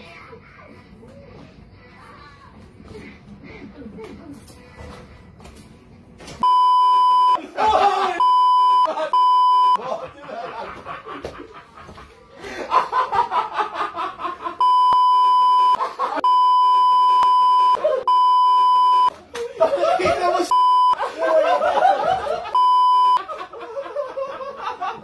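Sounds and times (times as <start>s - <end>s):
censor bleeps: 6.4s - 7.4s, 8.2s - 9.8s, 14.6s - 19.1s, 22.6s - 23.2s
men laughing: 7.2s - 16.4s, 17.4s - 25.0s
men talking excitedly: 19.6s - 20.6s.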